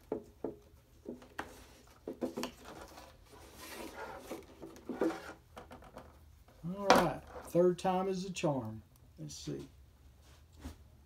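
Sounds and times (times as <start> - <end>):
plastic plate sliding: 1.4 - 5.7.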